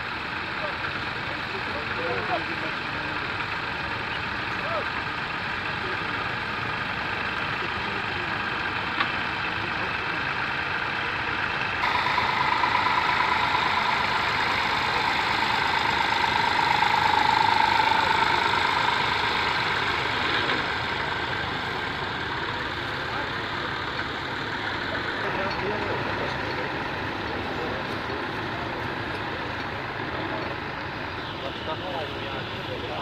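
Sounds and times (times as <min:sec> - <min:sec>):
tractor engine running: 0:00.0 - 0:33.0
steady hum: 0:11.8 - 0:23.0.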